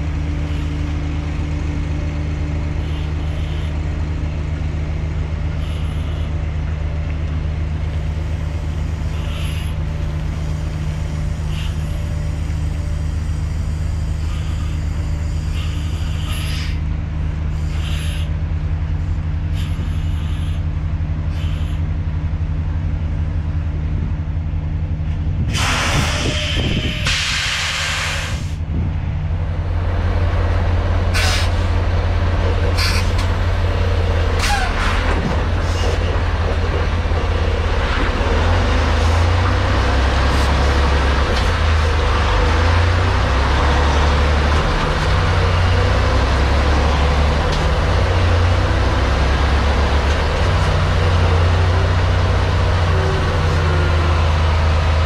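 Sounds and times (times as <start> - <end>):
diesel truck engine running: 0.0 - 55.0
loud air hisses: 25.5 - 28.6.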